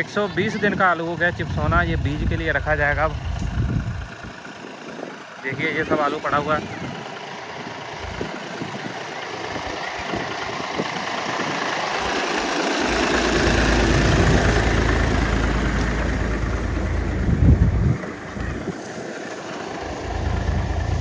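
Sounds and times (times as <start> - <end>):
tractor engine running: 0.0 - 21.0
deep rumble: 1.0 - 4.5, 9.6 - 18.8, 19.8 - 21.0.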